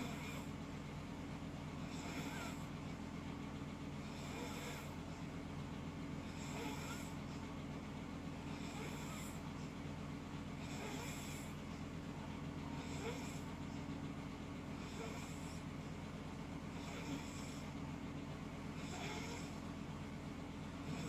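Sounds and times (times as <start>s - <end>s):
steady low hum: 0.0s - 21.0s
person snoring: 1.8s - 2.7s, 4.0s - 4.9s, 6.2s - 7.2s, 8.5s - 9.4s, 10.6s - 11.6s, 16.7s - 17.7s, 18.8s - 19.5s.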